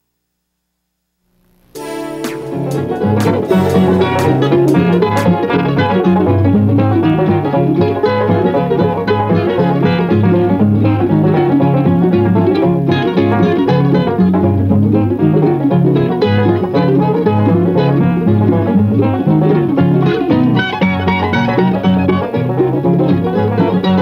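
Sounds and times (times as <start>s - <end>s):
repeating bass line: 1.4s - 7.2s
guitar: 1.6s - 24.0s
fast-picked banjo: 1.8s - 24.0s.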